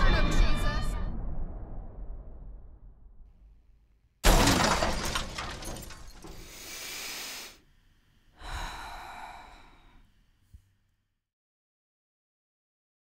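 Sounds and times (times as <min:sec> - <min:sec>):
person breathing loudly: 0:06.3 - 0:07.6, 0:08.4 - 0:10.1.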